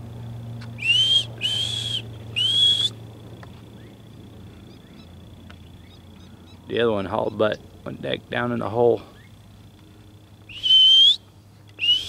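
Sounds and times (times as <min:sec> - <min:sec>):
ground squirrel alarm whistles: 0:00.8 - 0:03.0, 0:10.5 - 0:12.0.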